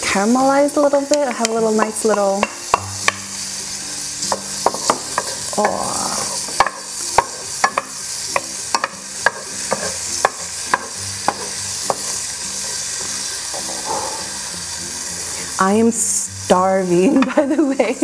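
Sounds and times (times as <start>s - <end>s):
meat sizzling in oil: 0.0s - 18.0s
wooden spatula knocking a pan: 4.3s - 5.8s, 6.4s - 12.1s.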